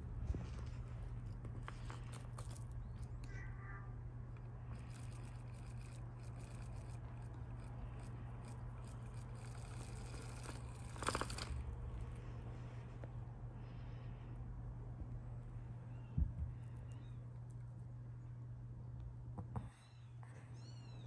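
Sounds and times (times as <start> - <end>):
steady low hum: 0.0 - 21.0
kitten claws scratching and clicking: 0.6 - 3.4, 4.3 - 12.1.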